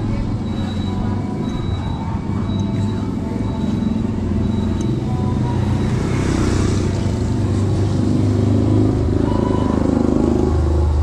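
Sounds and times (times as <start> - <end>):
street traffic rumbling: 0.0 - 11.0
motorcycle engine passing: 3.0 - 11.0.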